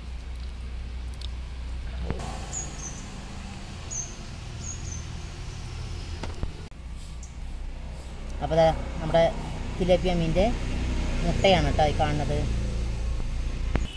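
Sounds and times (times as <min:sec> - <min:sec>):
steady low rumble: 0:00.0 - 0:10.5
small bird chirping: 0:02.4 - 0:06.2.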